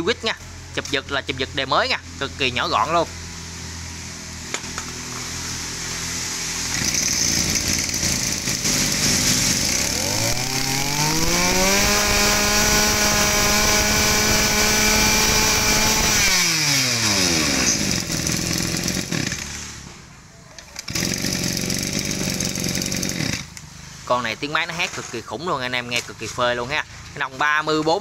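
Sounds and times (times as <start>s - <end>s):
brush cutter engine revving: 4.5s - 19.9s, 20.7s - 23.6s.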